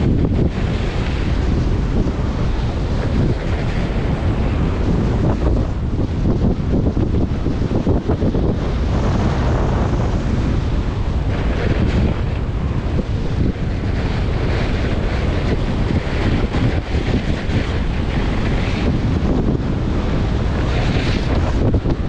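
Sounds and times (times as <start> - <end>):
wind buffeting microphone: 0.0 - 22.0
skis carving over snow: 11.2 - 22.0.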